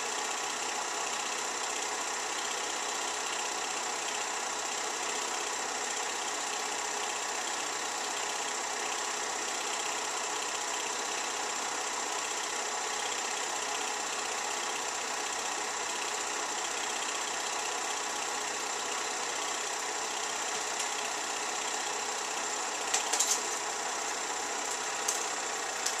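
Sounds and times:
film projector whirring: 0.0 - 26.0
sharp clicks: 22.9 - 23.6.

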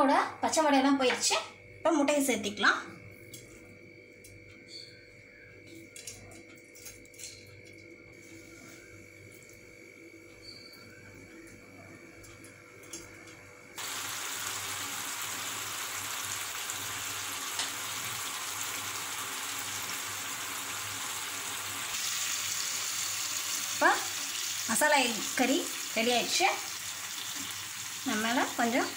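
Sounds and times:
gravy sizzling in a frying pan: 13.8 - 28.9.

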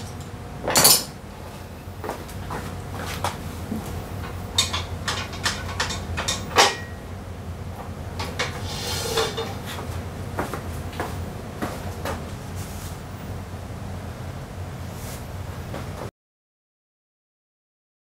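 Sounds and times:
metal clanks and knocks: 4.2 - 7.0, 8.2 - 9.7
metal scraping on concrete: 8.3 - 9.7.

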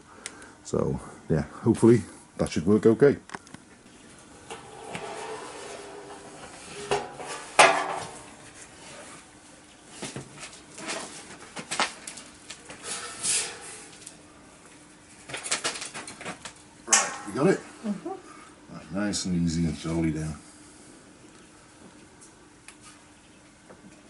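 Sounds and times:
barrel scraping: 4.0 - 9.3, 10.4 - 11.7, 12.7 - 14.2
hollow metallic knocks and clanks: 4.4 - 8.4.

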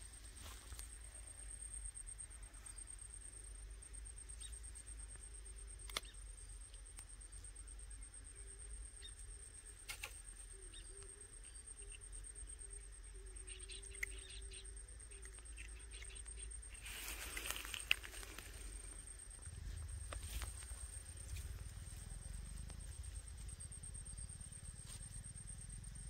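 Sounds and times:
sharp click: 5.8 - 6.2, 9.8 - 10.3.

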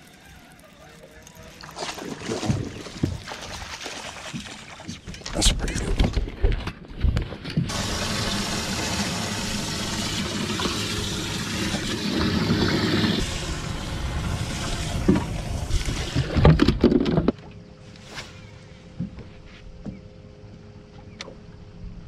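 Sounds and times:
water splashing and churning: 0.0 - 5.9, 7.6 - 17.3.

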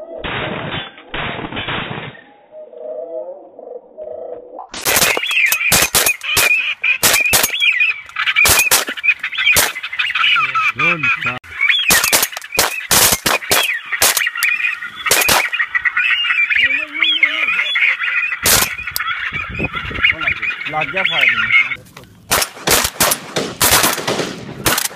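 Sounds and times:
shotgun bangs: 4.8 - 7.6, 8.4 - 9.8, 11.9 - 14.4, 15.1 - 15.5, 18.4 - 18.8, 22.3 - 24.9
ducks quacking: 4.9 - 21.9.

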